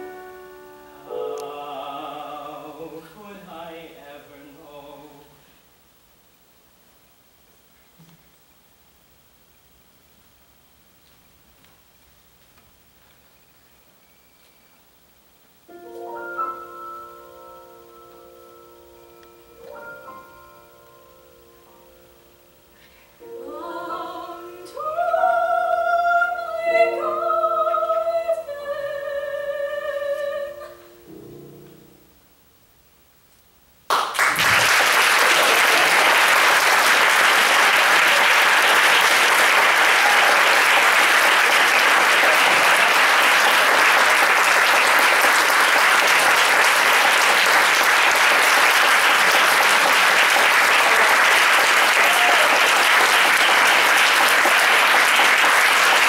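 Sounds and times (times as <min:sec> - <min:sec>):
piano: 0:00.0 - 0:05.4, 0:15.7 - 0:32.4
soprano and tenor singing: 0:00.0 - 0:05.4, 0:23.2 - 0:31.1
audience applause: 0:33.9 - 0:56.0.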